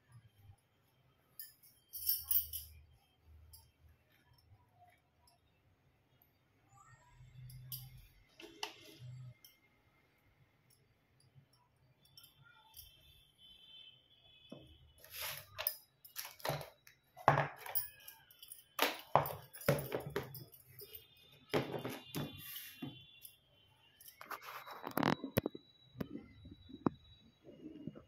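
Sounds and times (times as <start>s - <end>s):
metal objects clinking and knocking: 1.4s - 2.9s, 14.6s - 23.3s, 24.0s - 27.0s.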